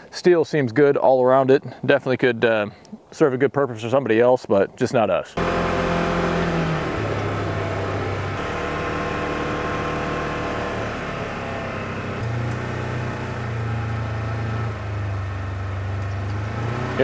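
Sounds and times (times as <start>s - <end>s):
vehicle engine running: 5.4s - 17.0s.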